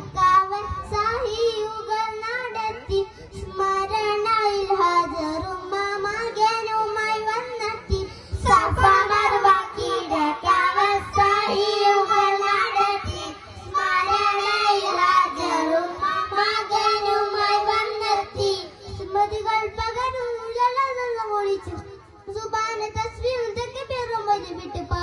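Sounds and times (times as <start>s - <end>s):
boys singing in unison: 0.0s - 20.6s.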